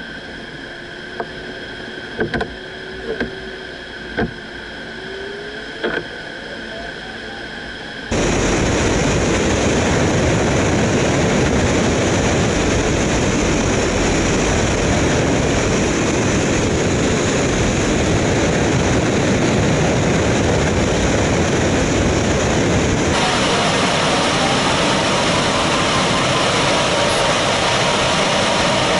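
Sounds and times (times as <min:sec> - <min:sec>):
wind buffeting microphone: 0:08.1 - 0:28.9.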